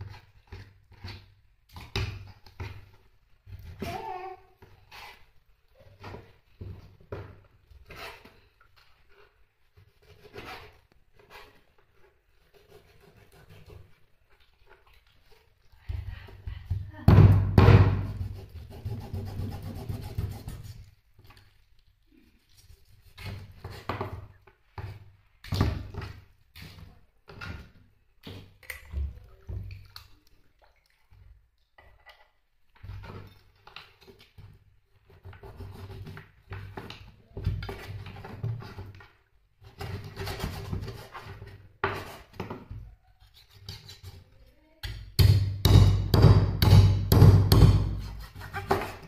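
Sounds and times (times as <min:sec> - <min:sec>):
objects knocking and thudding: 0:05.8 - 0:08.5, 0:15.8 - 0:18.4, 0:23.2 - 0:29.8, 0:31.8 - 0:43.0, 0:44.8 - 0:49.0
objects rubbing: 0:47.9 - 0:49.0.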